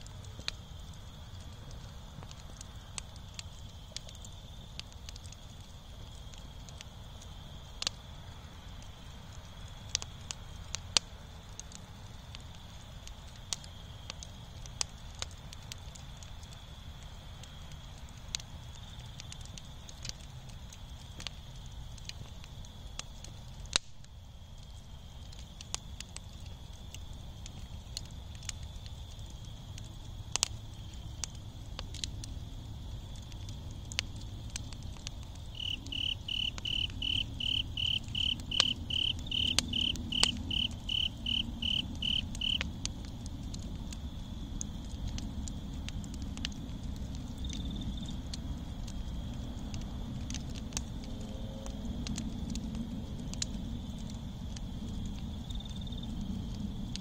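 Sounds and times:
campfire embers crackling: 0.0 - 57.0
faint insect trill: 0.3 - 50.0, 50.8 - 57.0
insect chirping: 34.2 - 42.8, 47.3 - 48.3, 55.3 - 56.9.

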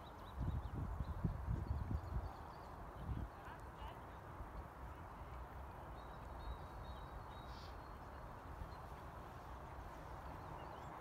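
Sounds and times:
faint bird chirps: 5.9 - 9.0.

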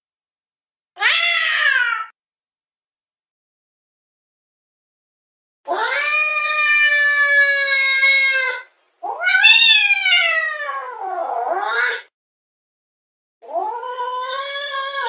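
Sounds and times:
cat meowing: 1.0 - 2.2, 5.7 - 12.1, 13.4 - 15.0.

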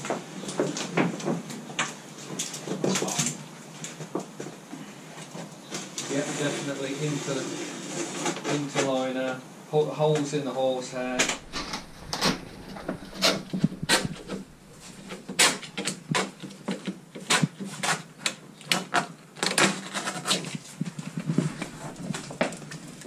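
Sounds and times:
fabric hood crackling and rustling: 11.0 - 16.0, 20.2 - 23.0.

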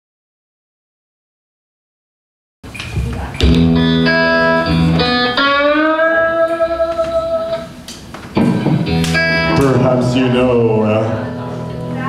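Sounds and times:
blues guitar playing: 3.4 - 12.0.

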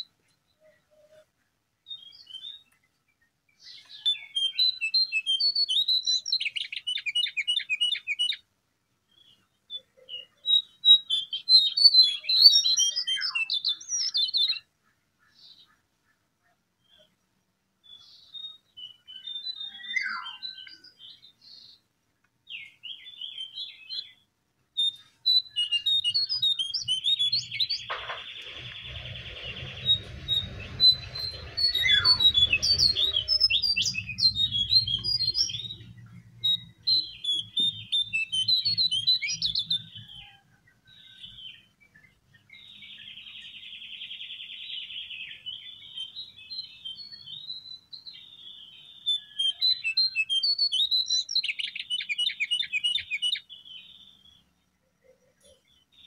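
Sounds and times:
bird singing chirps and whistles: 3.6 - 8.4, 9.2 - 14.6, 17.9 - 21.3, 24.8 - 54.4
low hum: 27.8 - 36.9.

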